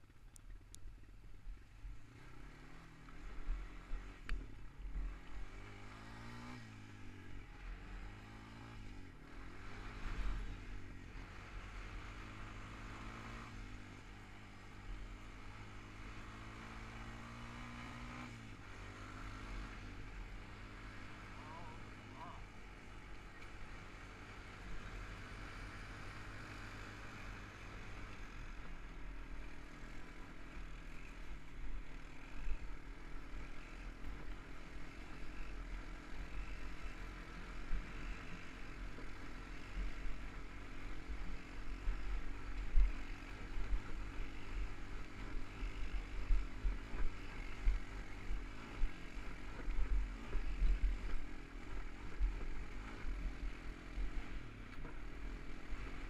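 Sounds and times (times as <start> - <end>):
quad bike engine running: 0.0 - 56.0
thumps on rough dirt trail: 37.5 - 56.0.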